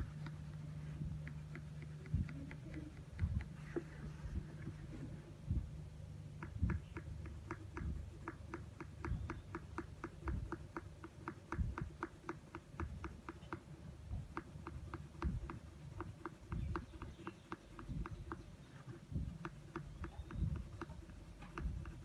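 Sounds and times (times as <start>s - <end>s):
colour pencil scratching on paper: 14.3s - 22.0s.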